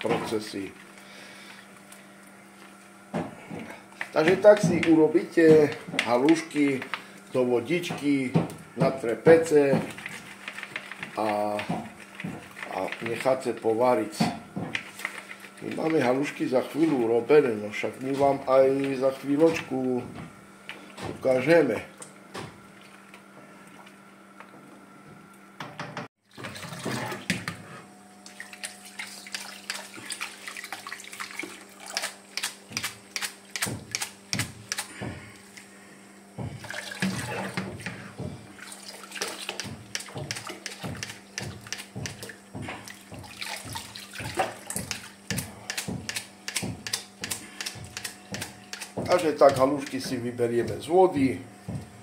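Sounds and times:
water sounds: 28.2s - 33.8s, 36.4s - 46.0s
utensil tapping: 44.8s - 50.8s.

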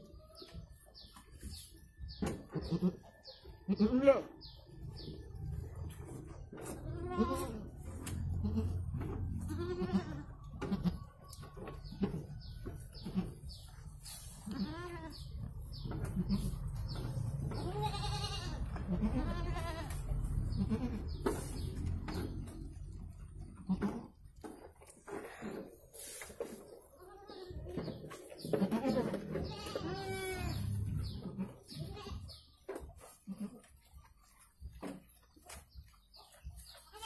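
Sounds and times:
goats bleating: 2.6s - 4.6s, 6.7s - 11.2s, 14.4s - 16.9s, 17.5s - 21.7s, 23.4s - 24.2s, 28.4s - 32.5s, 33.2s - 33.8s, 36.7s - 37.0s.

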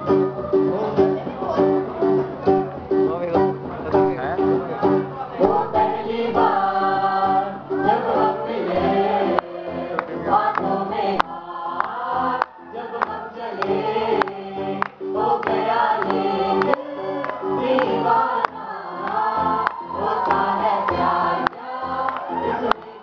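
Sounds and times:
rhythmic strummed accompaniment: 0.0s - 23.0s
group singing: 5.4s - 23.0s.

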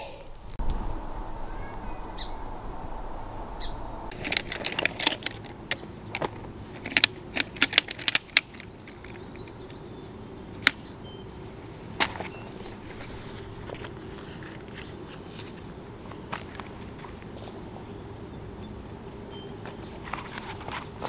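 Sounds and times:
metal chair poles clicking and rattling: 4.1s - 9.7s.

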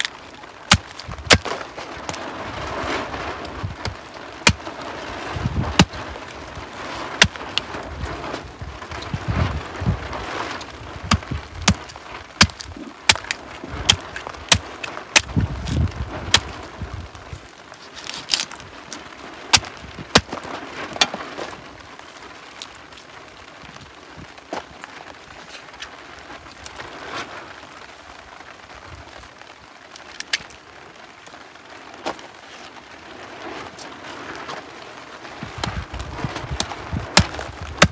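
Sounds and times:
machete chopping on wooden block: 12.4s - 14.6s, 37.2s - 37.9s.

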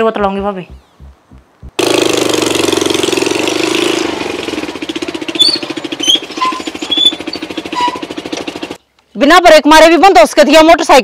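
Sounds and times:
motorcycle engine running: 0.4s - 8.8s
short high squeaks: 5.4s - 8.2s.

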